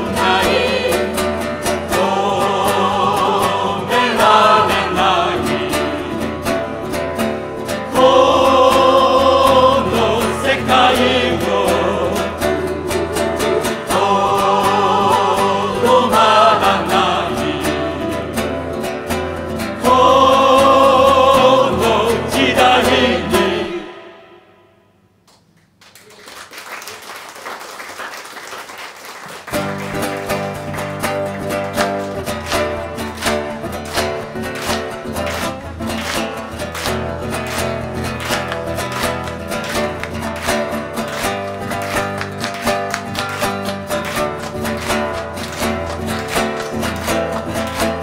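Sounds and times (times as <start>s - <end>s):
mixed choir singing: 0.0s - 6.9s, 7.8s - 18.8s, 19.6s - 24.8s
guitar playing: 0.0s - 25.0s, 29.5s - 48.0s
audience applauding: 25.3s - 48.0s.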